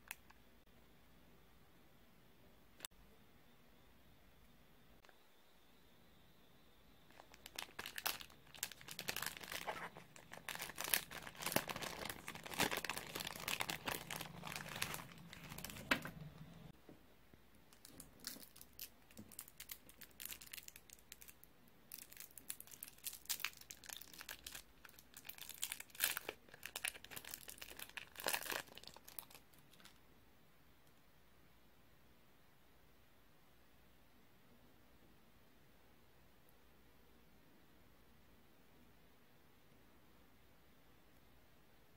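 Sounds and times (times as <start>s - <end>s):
plastic bag crinkling and tearing: 7.1s - 16.2s, 17.8s - 30.0s
candy wrappers crinkling: 7.1s - 16.7s, 17.7s - 30.0s.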